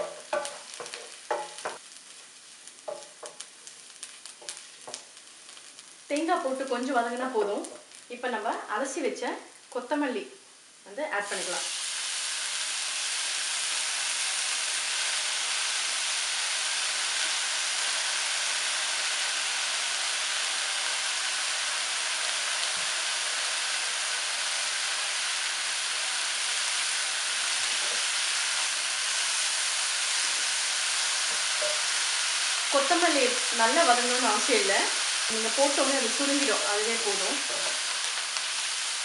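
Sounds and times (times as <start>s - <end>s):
hot oil sizzling in a pan: 0.0s - 39.0s.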